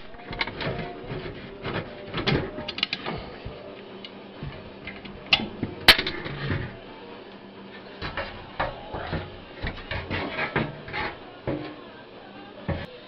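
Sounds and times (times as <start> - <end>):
metal knocks and clatter: 8.0 - 11.8.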